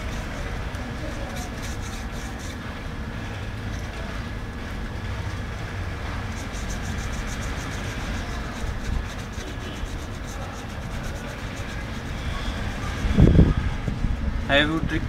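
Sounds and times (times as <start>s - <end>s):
paintbrush scratching on plaster: 0.0s - 2.7s, 6.2s - 13.6s.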